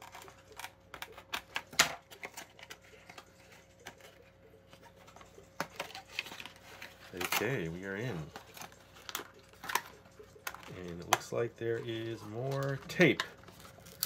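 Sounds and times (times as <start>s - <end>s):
packaging clicks and taps: 4.8s - 14.0s.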